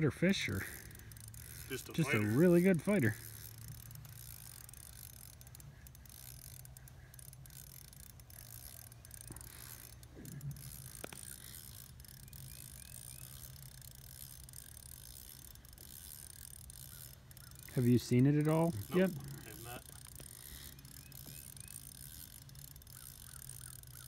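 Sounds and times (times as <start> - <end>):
fishing reel ticking: 0.0 - 24.0.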